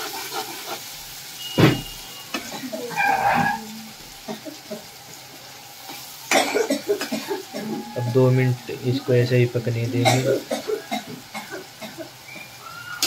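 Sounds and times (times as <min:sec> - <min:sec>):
spatula scraping pan: 0:00.0 - 0:03.9
onions sizzling in hot oil: 0:00.0 - 0:13.0.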